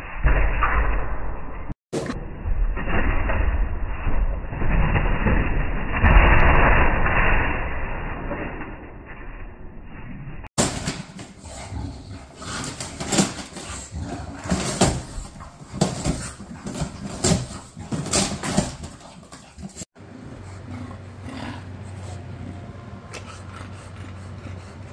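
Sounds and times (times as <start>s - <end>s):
dog breathing: 23.1s - 24.9s.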